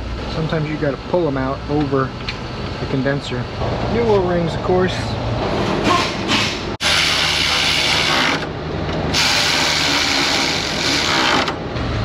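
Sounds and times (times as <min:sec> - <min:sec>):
electric ratchet running: 0:06.8 - 0:08.5, 0:09.1 - 0:11.6.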